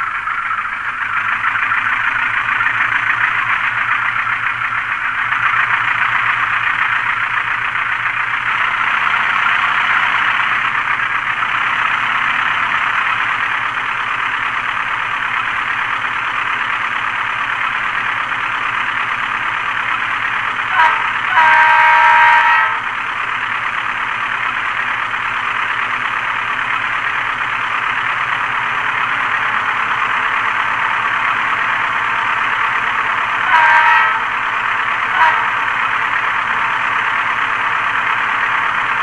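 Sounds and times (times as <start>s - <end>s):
model diesel engine idling: 0.0s - 39.0s
locomotive multi-note horn: 20.7s - 23.0s, 33.4s - 35.8s.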